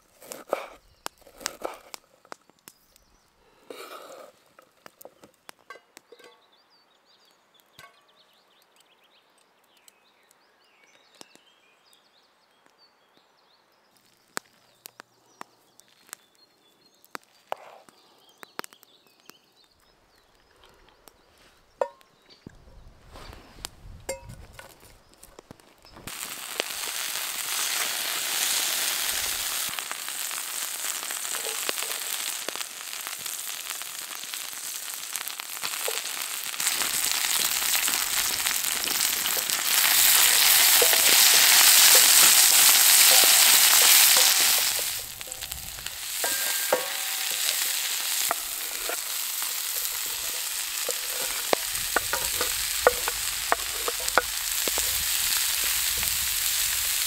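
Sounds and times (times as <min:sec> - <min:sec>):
food sizzling in a pan: 0:26.0 - 0:57.0.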